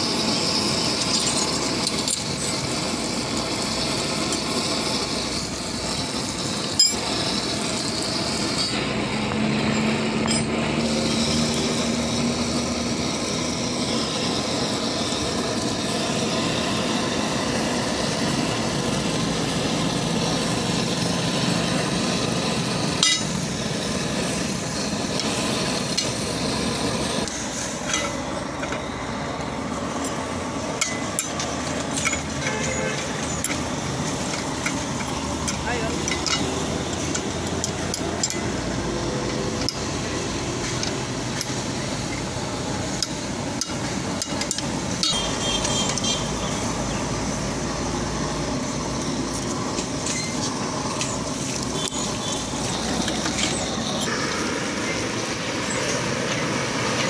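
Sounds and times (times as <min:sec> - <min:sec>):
mechanical background noise: 0:00.0 - 0:57.0
sharp metal clinks: 0:00.1 - 0:02.7, 0:06.6 - 0:07.3, 0:09.7 - 0:10.9.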